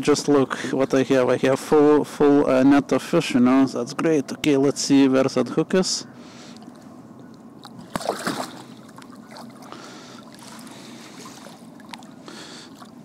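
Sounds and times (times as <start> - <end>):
water splashing and trickling: 7.6 - 13.0.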